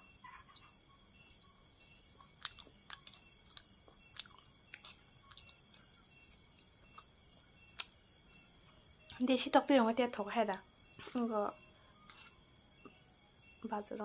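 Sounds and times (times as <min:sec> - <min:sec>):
person chewing noodles: 0:00.4 - 0:08.0.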